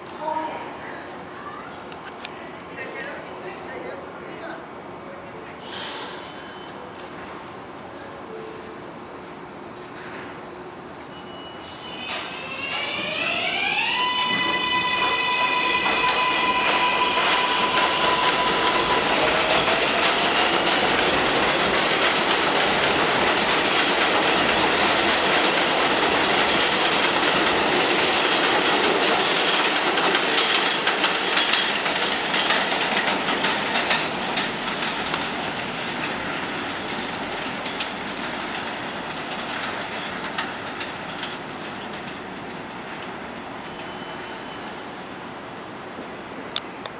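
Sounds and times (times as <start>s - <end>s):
subway train motor whine: 0.0s - 46.9s
train wheels clattering over rail joints: 14.3s - 44.1s.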